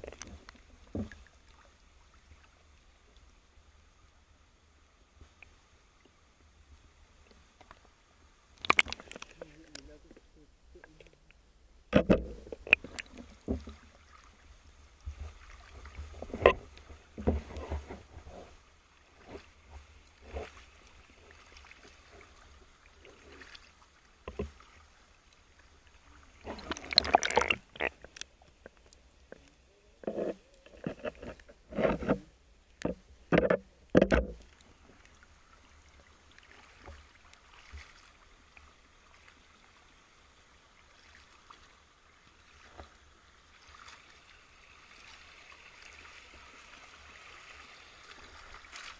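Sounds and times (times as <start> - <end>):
water sloshing and splashing: 0.0 - 3.3, 7.3 - 10.2, 11.9 - 48.9.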